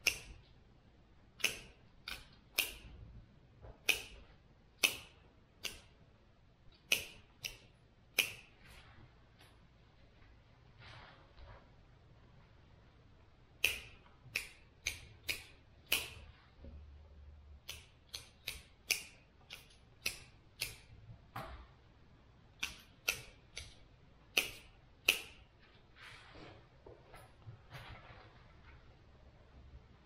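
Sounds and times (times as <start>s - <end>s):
pruning shears snipping: 1.4s - 2.9s, 3.8s - 4.2s, 4.8s - 5.9s, 6.8s - 8.6s, 13.6s - 16.3s, 17.6s - 20.9s, 22.6s - 25.4s.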